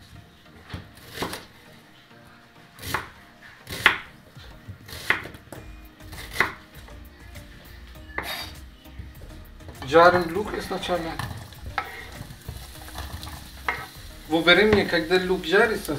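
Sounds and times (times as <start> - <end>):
knife chopping onion on wooden board: 2.8 - 4.1, 4.8 - 6.7.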